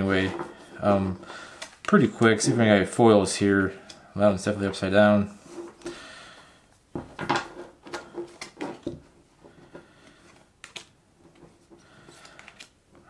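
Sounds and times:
trading cards flipped and slid: 0:10.0 - 0:13.0.

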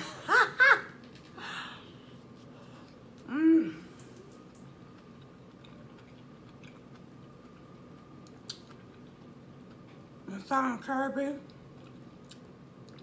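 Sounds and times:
chewing sounds: 0:04.3 - 0:10.1, 0:11.4 - 0:13.0.

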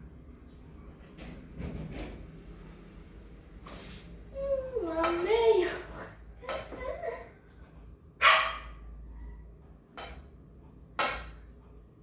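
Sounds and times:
dog barking: 0:08.2 - 0:08.8.

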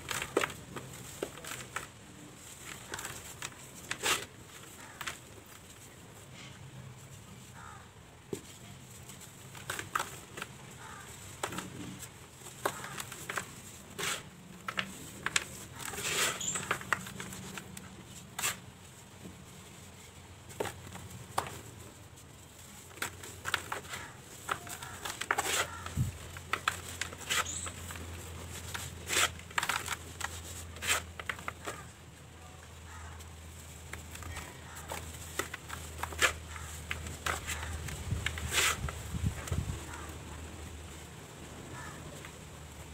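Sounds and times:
cement balls crushed by hand: 0:00.0 - 0:05.6, 0:09.4 - 0:18.8, 0:22.6 - 0:32.0.

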